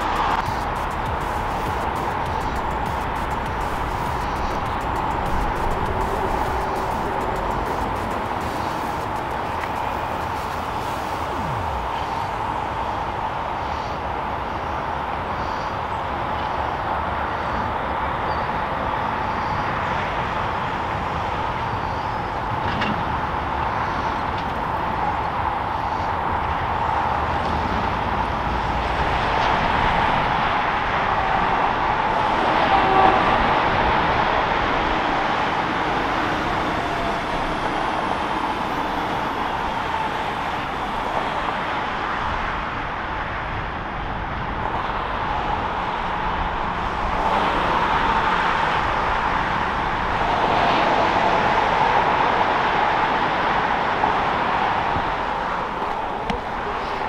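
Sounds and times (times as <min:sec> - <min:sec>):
electric train running: 0:00.0 - 0:15.6, 0:19.0 - 0:43.3
road traffic: 0:00.0 - 0:57.0.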